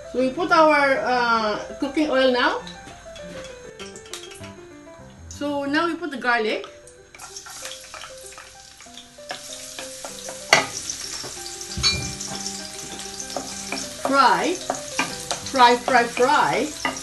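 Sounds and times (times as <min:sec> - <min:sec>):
garlic sizzling in hot oil: 0:07.1 - 0:17.0.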